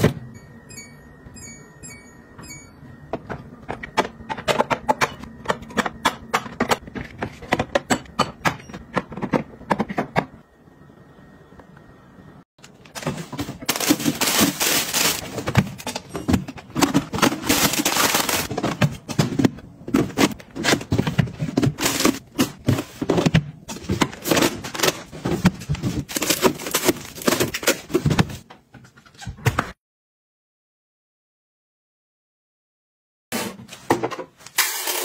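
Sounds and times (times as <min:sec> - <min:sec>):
food packets knocking and clicking: 0:12.6 - 0:28.5
wrapper rustling: 0:13.0 - 0:15.3, 0:17.2 - 0:18.5.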